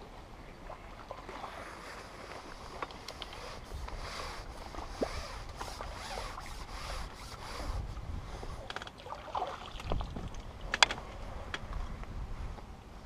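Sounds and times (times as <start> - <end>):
fishing tackle rustling and clicking: 1.7 - 7.9
wind buffeting microphone: 3.4 - 8.8, 9.6 - 13.0.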